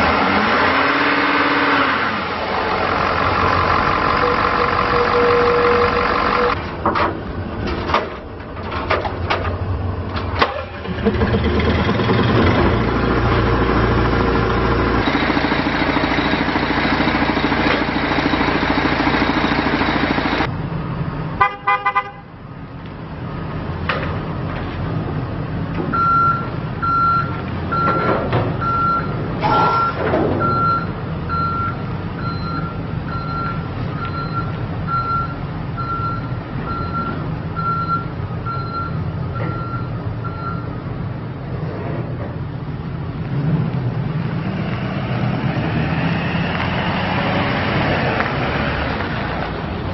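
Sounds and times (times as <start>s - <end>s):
diesel truck engine running: 0.0s - 21.5s, 22.3s - 49.9s
backup alarm beeping: 26.0s - 40.7s.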